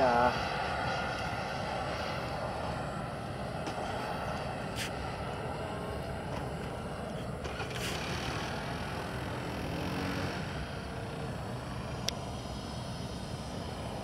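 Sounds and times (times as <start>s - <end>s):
jet turbine rushing with thin whine: 0.0s - 14.0s.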